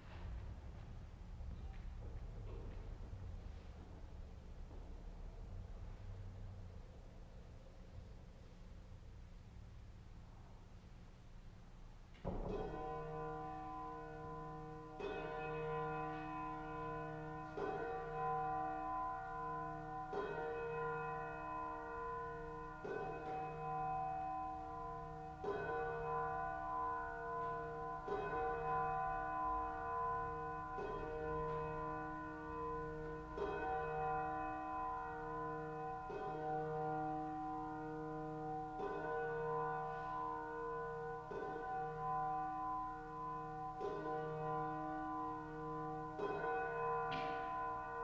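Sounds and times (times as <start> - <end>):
bell tolling slowly: 12.2 - 48.0.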